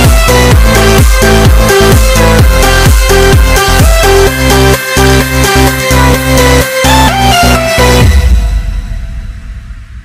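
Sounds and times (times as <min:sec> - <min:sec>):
steady kick drum: 0:00.0 - 0:04.5, 0:08.0 - 0:10.0
electronic dance music: 0:00.0 - 0:10.0.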